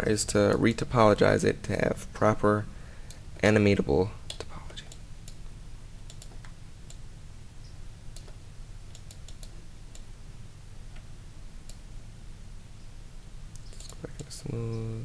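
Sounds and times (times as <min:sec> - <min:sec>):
steady low hum: 0:00.0 - 0:15.0
computer keyboard and mouse clicks: 0:06.1 - 0:07.0, 0:08.1 - 0:10.1.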